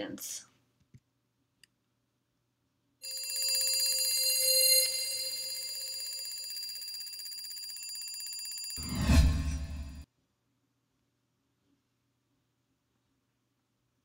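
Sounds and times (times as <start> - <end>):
alarm clock bell ringing: 3.0 - 10.0.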